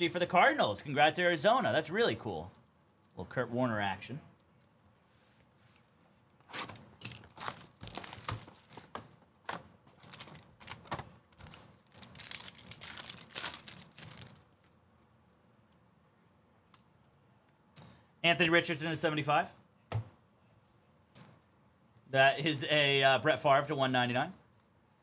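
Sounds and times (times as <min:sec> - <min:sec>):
card pack wrapper tearing: 0:06.5 - 0:08.9, 0:10.0 - 0:14.5.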